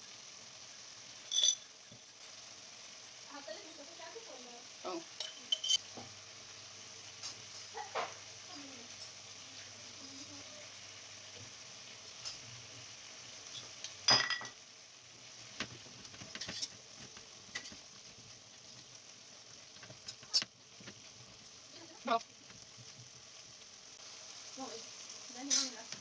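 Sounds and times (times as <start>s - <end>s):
stew simmering with sizzling hiss: 0.0s - 26.0s
spoon clanking against pan: 1.3s - 1.7s, 5.2s - 6.0s, 13.5s - 14.6s, 25.5s - 25.9s.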